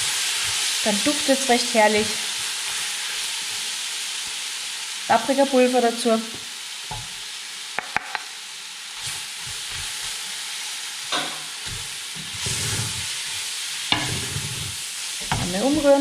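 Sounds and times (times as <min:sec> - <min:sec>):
onions sizzling in oil: 0:00.0 - 0:16.0
wooden spoon scraping and stirring: 0:11.6 - 0:13.3, 0:13.9 - 0:16.0.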